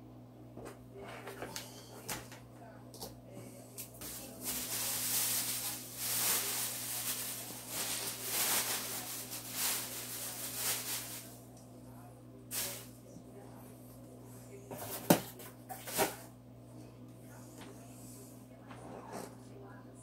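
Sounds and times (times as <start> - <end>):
plastic bag crinkling: 4.0 - 11.4.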